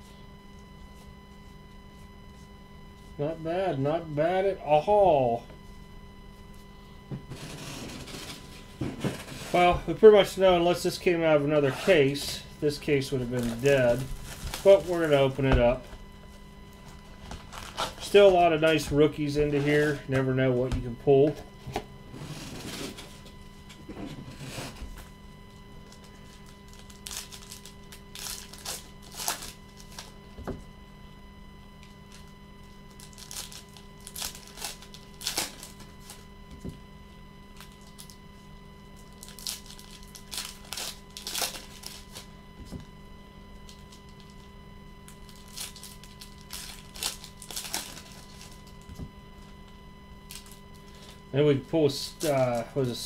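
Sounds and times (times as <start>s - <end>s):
faint electrical hum: 0.0s - 53.0s
foil wrappers tearing and crinkling: 7.3s - 9.7s, 11.7s - 15.5s, 16.9s - 20.1s, 25.8s - 30.2s, 32.9s - 36.3s, 37.5s - 38.2s, 39.0s - 42.3s, 43.7s - 48.9s, 50.2s - 51.2s.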